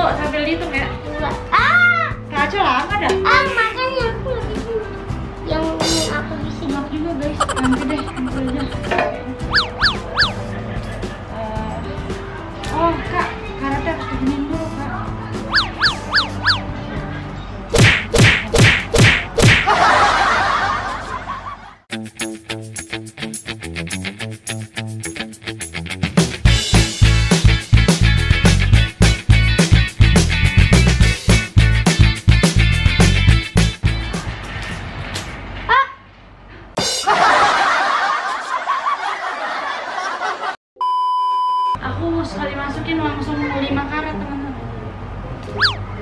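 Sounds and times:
music: 0.0s - 19.6s, 21.9s - 34.9s, 36.8s - 37.1s
loud laughter: 7.4s - 9.0s, 10.0s - 11.3s, 19.6s - 21.8s, 37.0s - 40.6s
falling electronic chirp: 7.4s - 10.5s, 15.5s - 16.7s, 45.6s - 46.0s.

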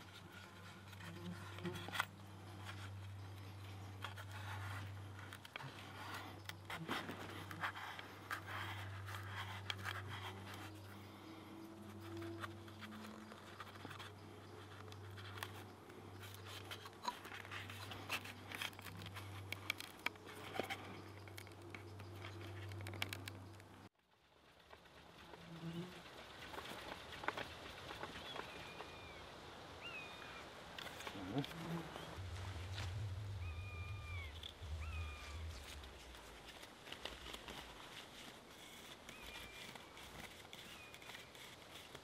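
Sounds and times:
fibres rustling and scratching on wood: 0.0s - 29.2s, 30.7s - 42.0s
small crackles and clicks: 0.0s - 29.2s, 29.8s - 33.3s, 33.9s - 42.0s
steady low hum: 31.1s - 37.8s.

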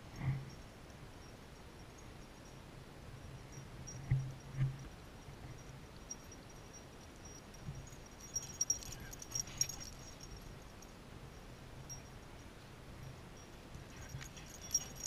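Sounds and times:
collar clinking: 6.0s - 12.4s, 13.4s - 15.0s.

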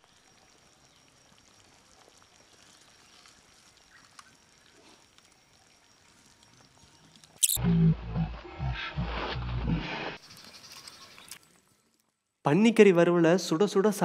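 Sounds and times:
faint steady hiss: 0.0s - 7.4s.

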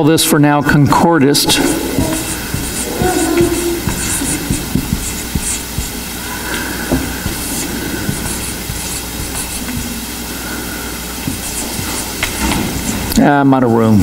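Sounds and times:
steady background hiss: 0.0s - 14.0s
marker squeaking on whiteboard: 1.4s - 10.1s, 11.2s - 13.2s.

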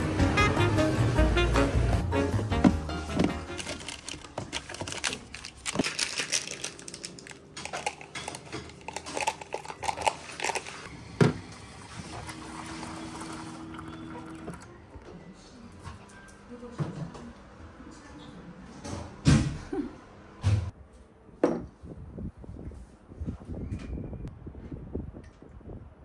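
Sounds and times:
snack crackling and crunching: 3.6s - 10.9s.

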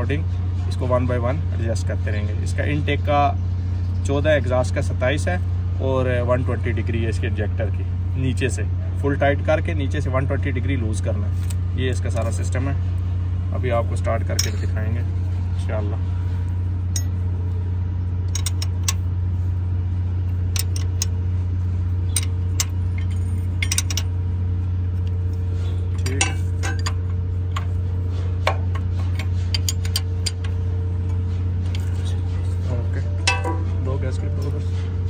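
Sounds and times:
low machinery hum: 0.0s - 35.0s.

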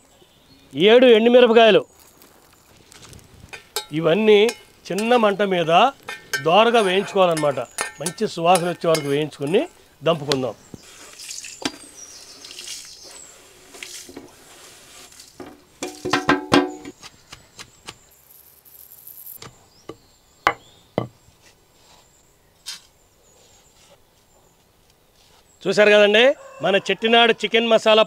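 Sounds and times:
pestle pounding in stone mortar: 6.1s - 9.2s, 15.8s - 16.9s.

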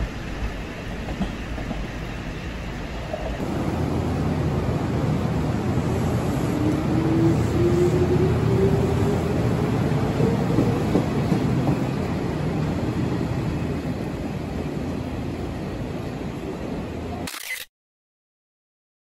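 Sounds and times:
train whine rising in pitch: 0.0s - 12.1s
train wheels rumbling on rails: 0.0s - 17.2s.

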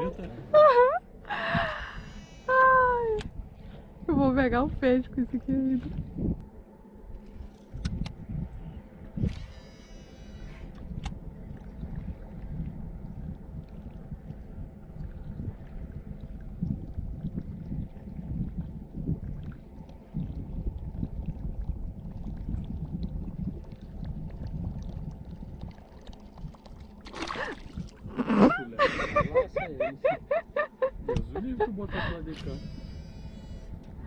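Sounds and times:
faint steady hum: 0.0s - 34.0s
wind and water rumble: 0.0s - 34.0s
fish splash: 25.7s - 28.0s.

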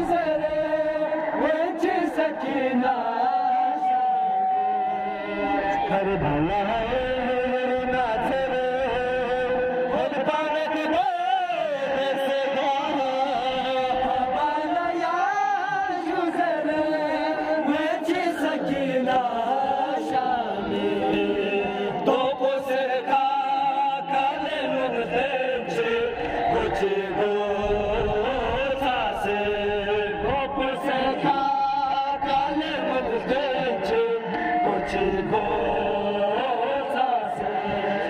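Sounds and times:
men chanting a lament: 0.0s - 38.0s.

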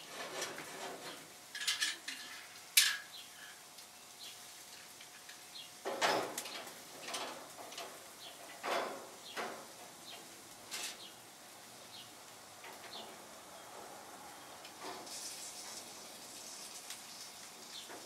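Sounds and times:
metal spatula scraping grill grates: 0.0s - 3.7s, 10.7s - 11.1s, 14.8s - 17.9s
small birds chirping: 11.8s - 12.2s.

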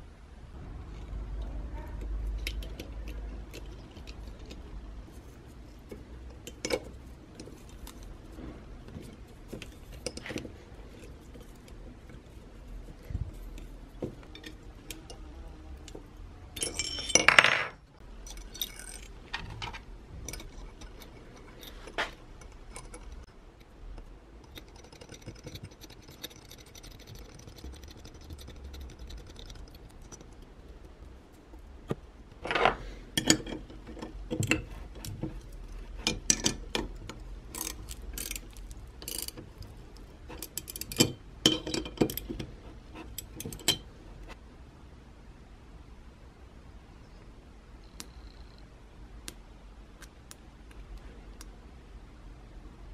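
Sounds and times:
small metal parts clinking: 9.1s - 16.0s, 16.6s - 23.3s, 32.4s - 43.9s
ratchet wrench clicking: 37.5s - 39.7s.

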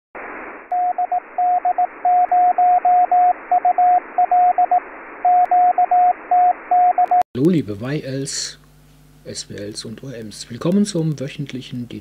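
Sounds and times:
radio receiver hiss: 0.2s - 2.3s
morse code tones: 0.7s - 7.2s.

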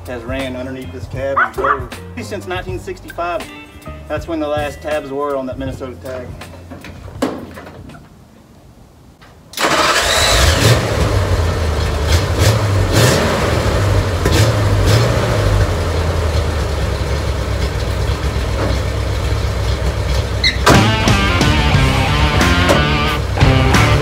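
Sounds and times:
truck engine starting and rumbling: 9.5s - 24.0s.

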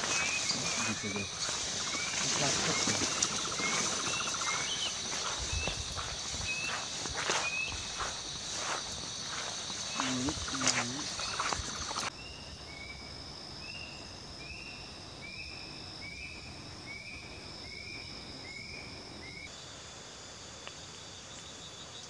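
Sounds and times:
brushing through undergrowth: 0.0s - 12.1s
high-pitched insect drone: 0.0s - 22.0s.

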